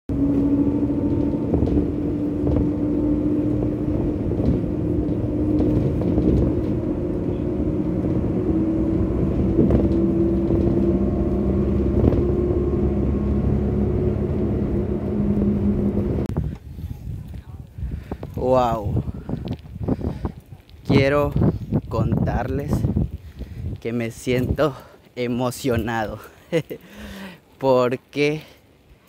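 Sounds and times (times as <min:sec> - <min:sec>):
engine hum rising in pitch: 0:00.0 - 0:16.3
vehicle road drone from inside: 0:00.1 - 0:17.6.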